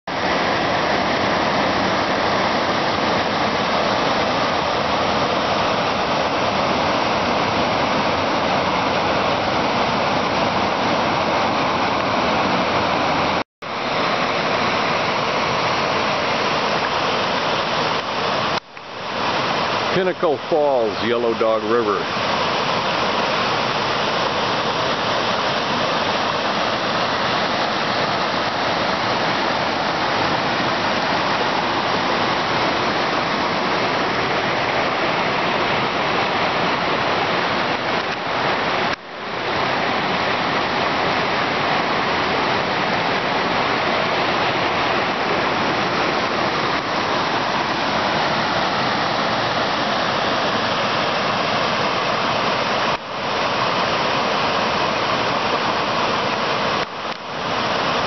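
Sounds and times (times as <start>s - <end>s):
water rushing over rock: 0.0s - 58.0s.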